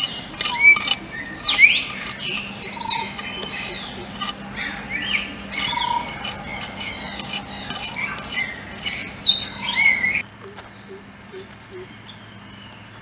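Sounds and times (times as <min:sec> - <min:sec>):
knife scraping yam skin: 0:00.0 - 0:10.2
birds whistling: 0:00.0 - 0:13.0.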